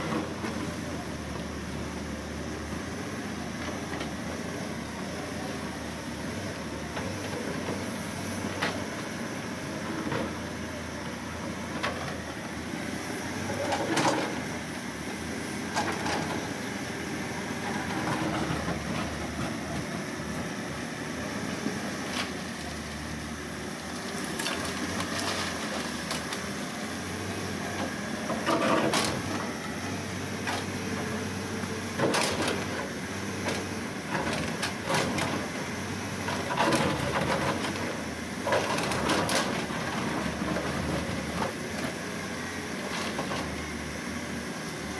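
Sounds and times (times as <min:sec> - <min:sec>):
diesel engine under load: 0:00.0 - 0:44.9
bucket scraping and dumping earth: 0:24.2 - 0:26.4.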